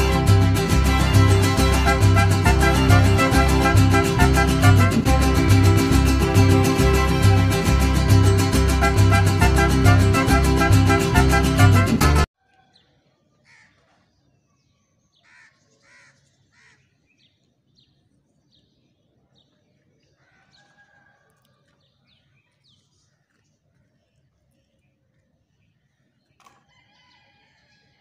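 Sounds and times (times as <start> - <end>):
background music: 0.0 - 12.3.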